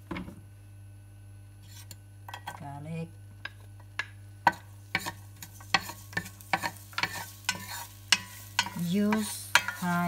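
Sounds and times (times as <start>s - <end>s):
garlic frying in oil: 3.7s - 10.0s
wooden spatula scraping a pot: 4.5s - 10.0s.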